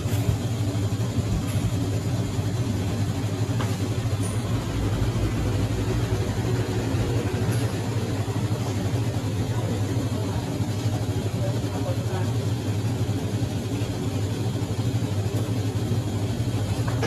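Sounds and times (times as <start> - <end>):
low mechanical hum: 0.0 - 17.0
noisy background: 0.0 - 17.0.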